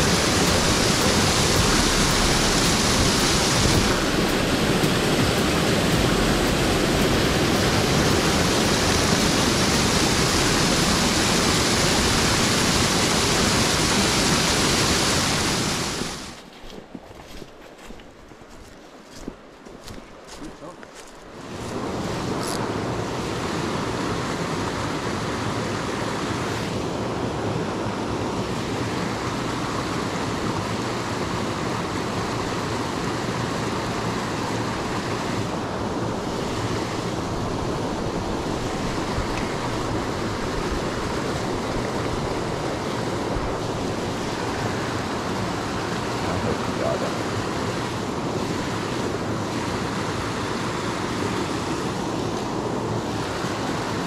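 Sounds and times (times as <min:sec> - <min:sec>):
water rushing into rock pool: 0:00.0 - 0:16.4, 0:28.6 - 0:54.0.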